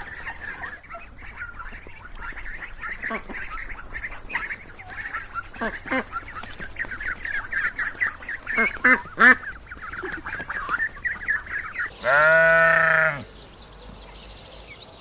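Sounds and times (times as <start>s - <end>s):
ducks whistling: 0.0s - 13.3s
sheep bleating: 12.0s - 13.3s.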